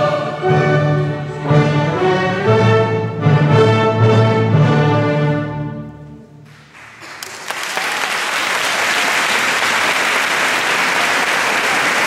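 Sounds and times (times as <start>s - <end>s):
audience applause: 6.5s - 12.0s.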